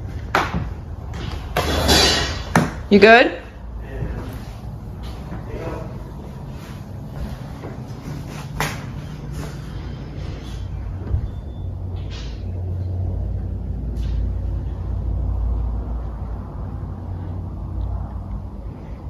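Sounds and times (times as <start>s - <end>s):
low rumble: 8.9s - 19.0s.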